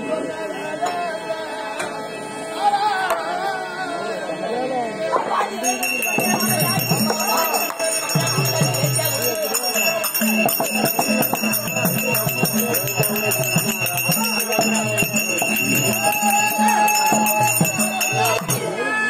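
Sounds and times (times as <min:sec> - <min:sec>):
jingling bells: 0:05.6 - 0:19.0
drum strokes: 0:05.8 - 0:18.7.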